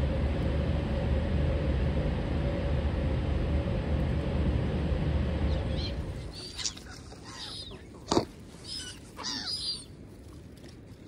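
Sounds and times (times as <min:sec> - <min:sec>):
birds chirping: 0:05.5 - 0:10.0.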